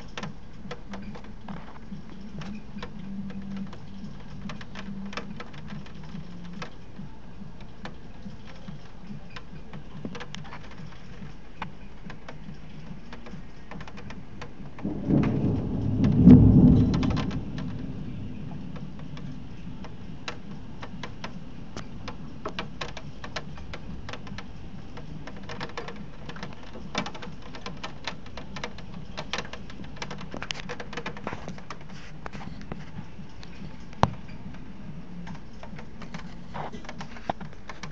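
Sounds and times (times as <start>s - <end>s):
raindrops tapping: 0.0s - 37.9s
steady rain: 0.0s - 37.9s
thunder rumbling: 14.2s - 31.8s.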